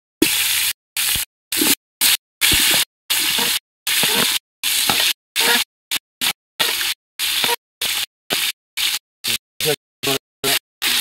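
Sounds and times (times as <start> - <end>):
onions sizzling in hot oil: 0.2 - 11.0.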